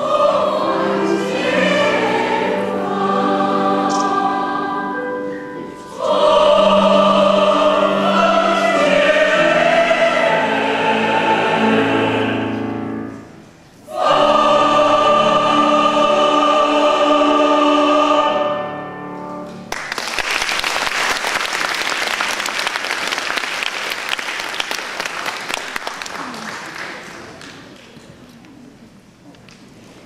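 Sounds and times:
mixed choir singing: 0.0 - 13.2, 13.8 - 19.0
audience applause: 19.7 - 27.8.

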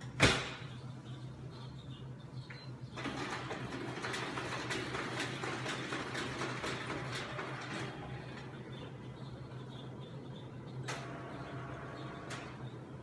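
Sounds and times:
low machine hum: 0.0 - 13.0
photocopier clicking: 3.0 - 8.7.

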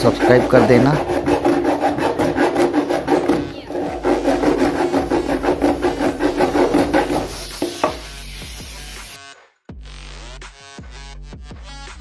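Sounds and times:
blade sawing metal can: 0.0 - 8.2.

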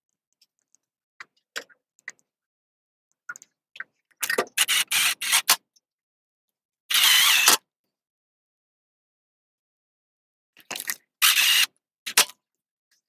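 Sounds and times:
screwdriver grinding screws: 4.6 - 5.6, 6.9 - 7.6, 11.2 - 12.2.

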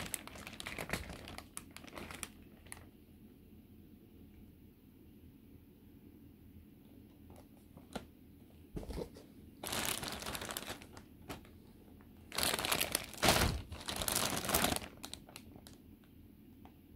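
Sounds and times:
plastic bags crinkling: 0.0 - 2.9, 9.6 - 15.8.

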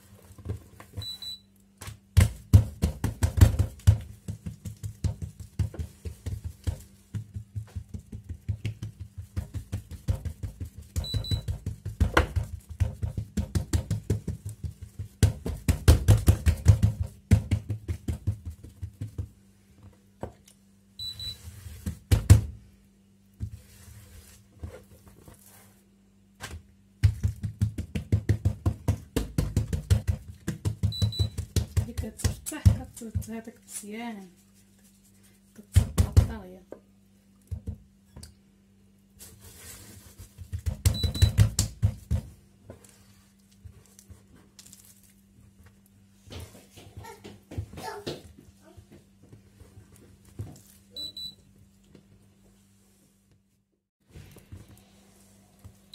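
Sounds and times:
hands patting dough on counter: 1.8 - 20.4, 21.3 - 22.7, 23.3 - 25.4, 26.4 - 33.6, 34.3 - 38.4, 39.3 - 44.7, 45.3 - 51.1.

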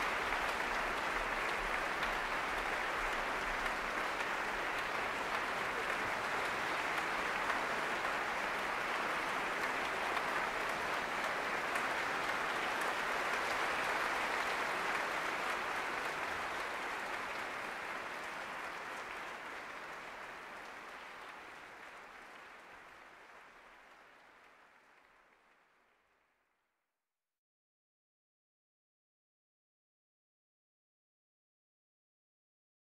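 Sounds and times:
audience applauding: 0.0 - 26.2.

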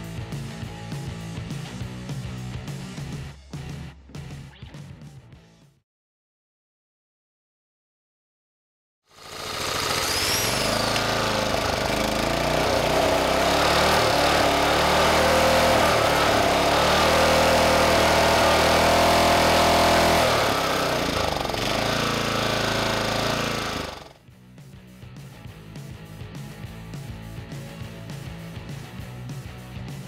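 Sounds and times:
small engine running unevenly: 9.1 - 24.2.

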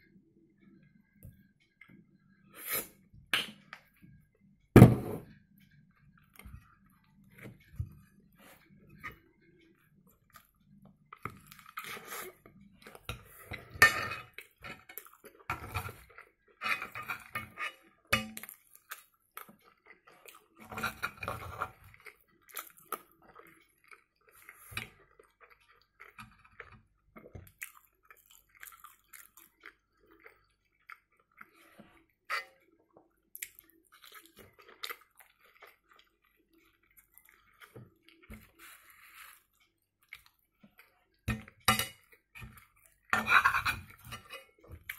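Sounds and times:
fork scraping a frying pan: 16.6 - 18.4, 20.6 - 21.8, 43.1 - 44.6
man chewing: 21.5 - 32.1.

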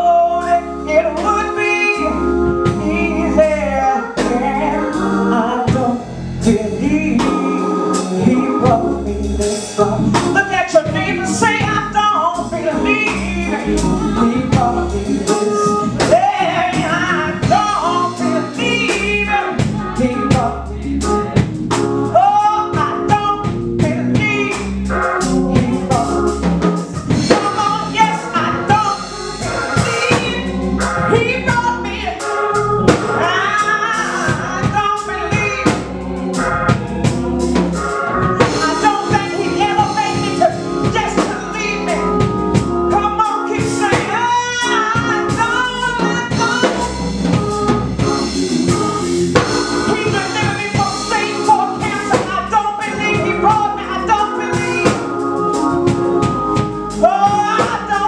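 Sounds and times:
woman singing into a microphone: 0.0 - 20.9, 22.1 - 26.3, 27.1 - 29.0, 29.8 - 32.2, 33.2 - 35.9, 38.4 - 42.0, 42.9 - 47.0, 49.9 - 55.0, 57.0 - 58.0
band with drums playing: 2.5 - 3.5, 5.7 - 58.0.

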